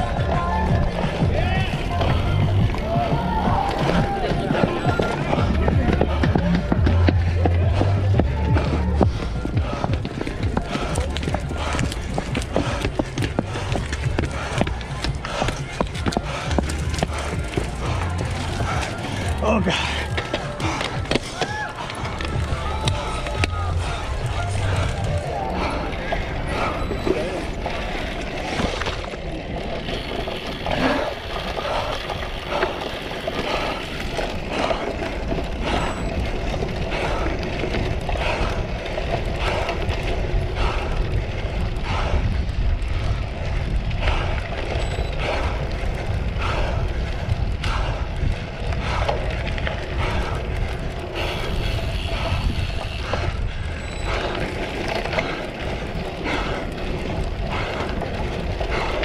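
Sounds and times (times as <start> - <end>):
tyres rumbling on grass: 0.0 - 26.4
bike chain and frame rattling: 0.0 - 59.0.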